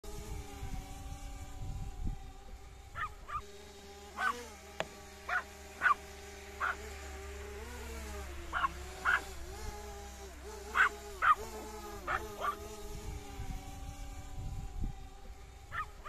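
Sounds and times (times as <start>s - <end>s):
drone motors whining: 0.0s - 16.0s
small dog barking: 3.0s - 3.5s, 4.2s - 4.5s, 5.3s - 6.9s, 8.5s - 9.4s, 10.7s - 12.7s, 15.7s - 16.0s.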